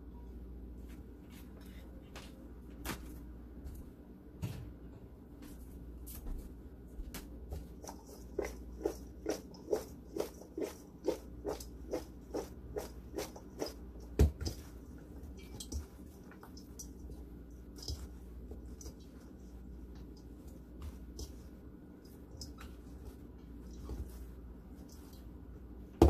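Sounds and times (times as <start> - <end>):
hands mixing vegetables in bowl: 7.4 - 26.0.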